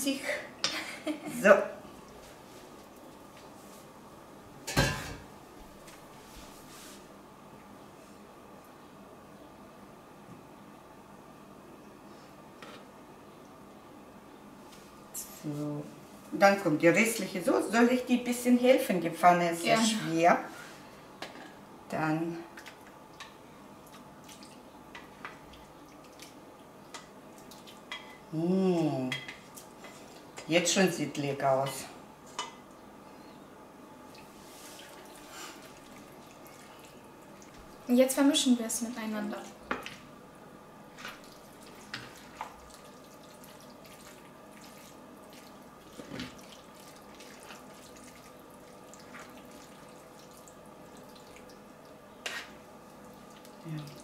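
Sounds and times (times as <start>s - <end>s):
wet squelching of pasta: 34.1s - 37.9s, 40.9s - 54.0s
spatula scraping sauce from pan: 52.2s - 52.6s.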